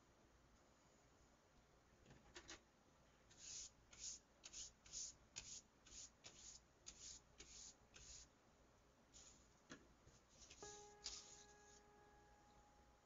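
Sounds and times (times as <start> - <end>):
soft scratchy rubbing strokes: 9.1 - 11.9.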